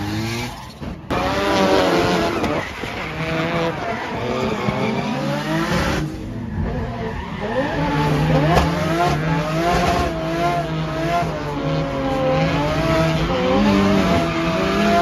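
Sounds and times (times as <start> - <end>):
tyre squeal: 0.0 - 8.5
car engine revving: 0.0 - 15.0.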